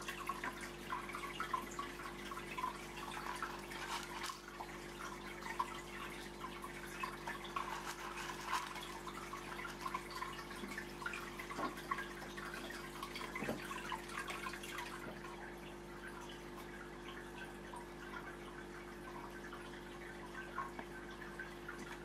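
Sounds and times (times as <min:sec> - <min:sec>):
aquarium water bubbling: 0:00.0 - 0:22.0
small drips and pops: 0:00.0 - 0:22.0.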